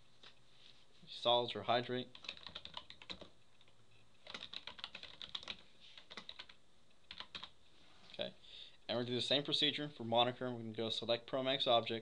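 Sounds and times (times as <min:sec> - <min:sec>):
typing on computer keyboard: 0:02.1 - 0:07.5.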